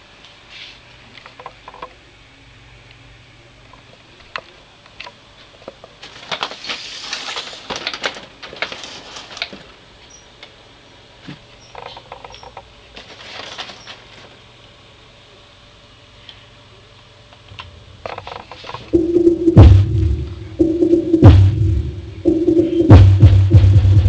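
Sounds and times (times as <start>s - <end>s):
faint low hum: 11.2s - 24.0s.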